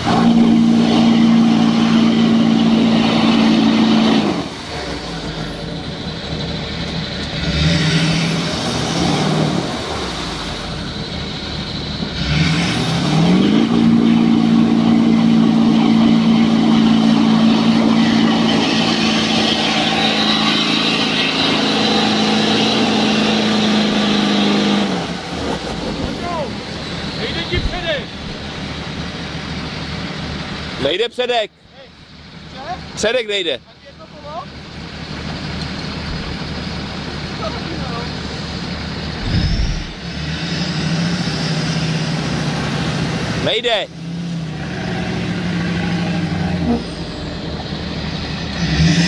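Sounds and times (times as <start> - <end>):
engine revving high: 0.0 - 5.6, 7.2 - 10.9, 12.0 - 26.4, 39.2 - 49.0.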